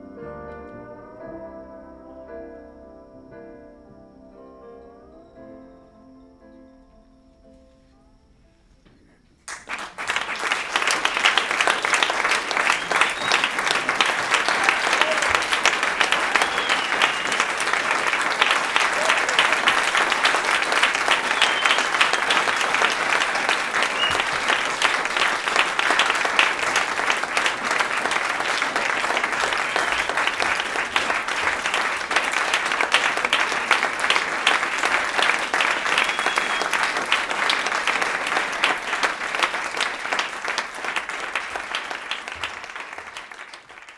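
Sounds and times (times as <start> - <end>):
audience applauding: 9.4 - 43.9.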